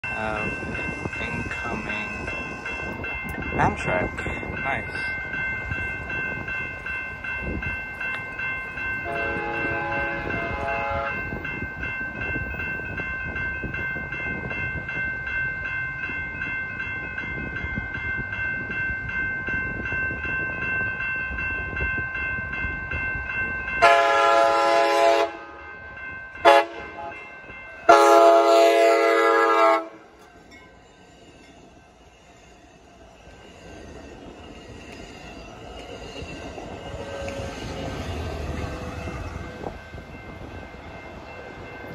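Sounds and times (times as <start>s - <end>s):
crossing warning bell ringing: 0.0s - 41.9s
train cars rolling past: 0.0s - 41.9s
train rumble: 0.0s - 41.9s
train horn: 9.0s - 11.4s, 23.8s - 25.7s, 26.4s - 30.1s.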